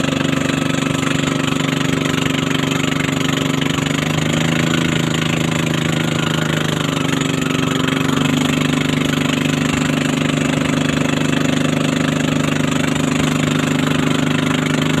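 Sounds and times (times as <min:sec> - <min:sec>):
motorboat engine running: 0:00.0 - 0:15.0
water splashing along hull: 0:00.0 - 0:15.0.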